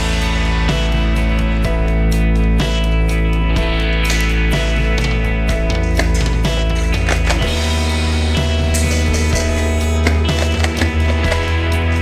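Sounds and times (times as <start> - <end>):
loud rock music with guitar: 0.0 - 12.0.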